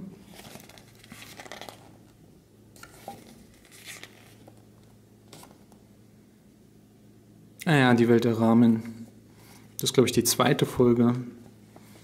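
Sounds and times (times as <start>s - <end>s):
paper pages rustling: 0.2s - 2.1s, 2.8s - 4.6s, 5.3s - 5.8s.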